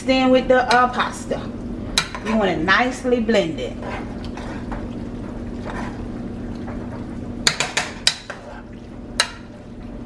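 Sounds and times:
steady low hum: 0.0 - 10.0
spoon stirring food in pot: 1.9 - 2.6, 3.6 - 10.0
spoon knocking against pot: 7.4 - 8.4, 9.2 - 9.5.

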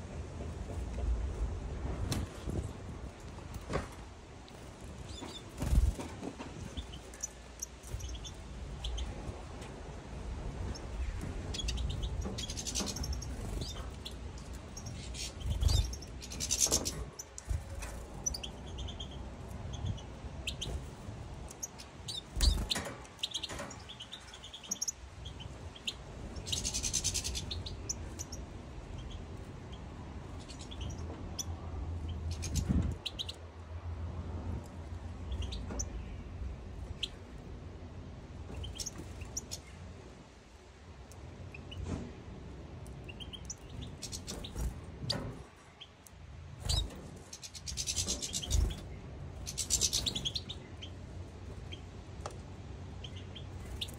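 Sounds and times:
finches chirping and twittering: 5.1 - 9.3, 10.6 - 33.4, 35.3 - 36.2, 38.5 - 39.7, 43.0 - 46.0, 46.6 - 51.0, 53.0 - 53.9.

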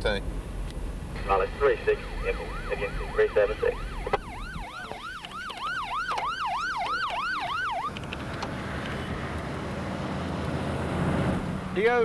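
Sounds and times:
road noise: 0.0 - 12.0
police siren yelping: 1.3 - 8.2.

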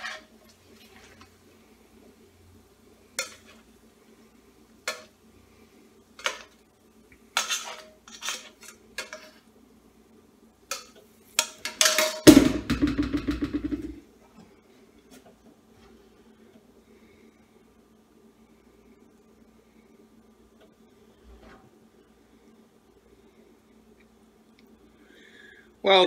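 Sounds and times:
utensil scraping steel pan: 7.4 - 9.4
loud clatter: 12.0 - 14.0.

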